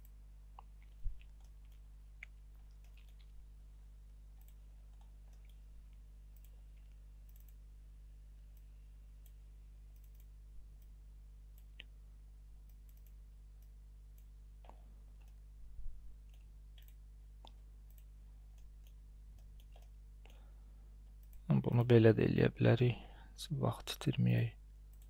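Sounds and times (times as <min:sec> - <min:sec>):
faint mouse clicks: 0:00.0 - 0:03.4, 0:04.4 - 0:07.6, 0:08.5 - 0:12.0, 0:12.6 - 0:15.4, 0:16.2 - 0:20.5, 0:21.2 - 0:21.9
steady low hum: 0:00.0 - 0:25.0.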